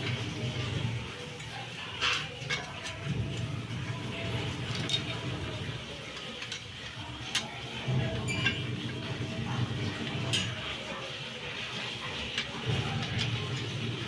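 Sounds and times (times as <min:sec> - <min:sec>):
metal parts clinking: 0:01.3 - 0:03.5, 0:04.6 - 0:08.8.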